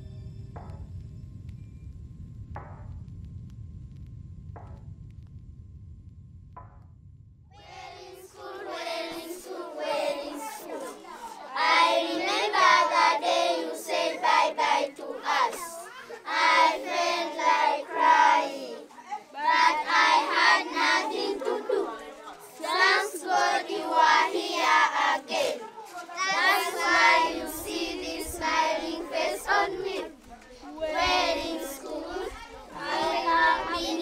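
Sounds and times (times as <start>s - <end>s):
children singing together: 7.6s - 34.0s.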